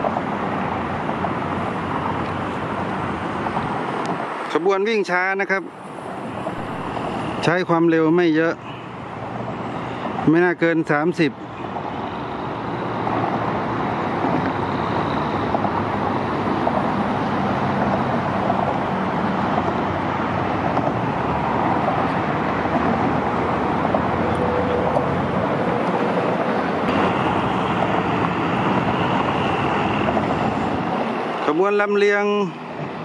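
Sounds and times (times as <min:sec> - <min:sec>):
traffic rumble: 0:00.0 - 0:33.0.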